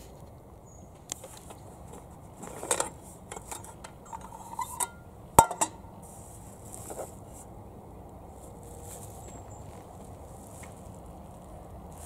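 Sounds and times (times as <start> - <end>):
metal lid clicks and scrapes: 1.2 - 5.8
metal lid clanking on table: 2.6 - 5.8.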